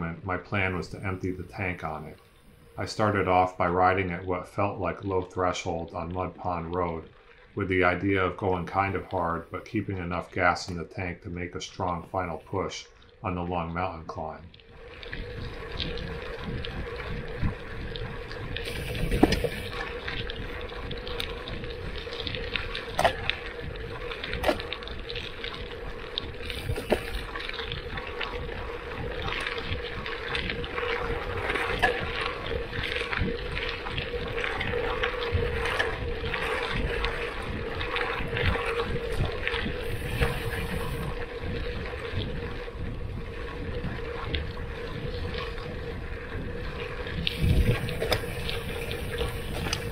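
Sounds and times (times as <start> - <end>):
steady hum: 0.0 - 49.9
wind noise: 14.7 - 49.9
bike tyres rumbling on dirt: 14.8 - 49.9.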